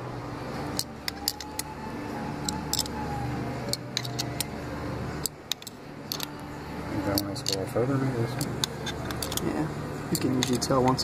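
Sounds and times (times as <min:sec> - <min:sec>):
steady low hum: 0:00.0 - 0:11.0
metal-on-metal clicks: 0:02.4 - 0:03.0, 0:03.7 - 0:04.5, 0:05.2 - 0:06.4, 0:08.4 - 0:09.5.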